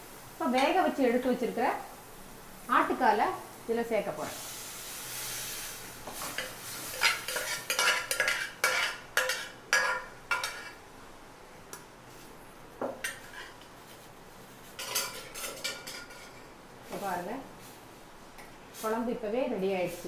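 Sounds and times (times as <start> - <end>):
metal spoon scraping and clinking pot: 6.4 - 10.8, 14.8 - 16.4.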